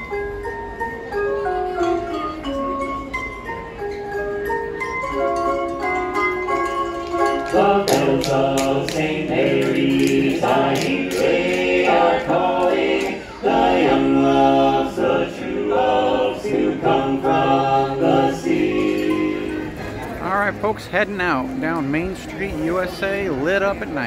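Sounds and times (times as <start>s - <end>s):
male quartet singing a cappella: 7.4s - 19.8s.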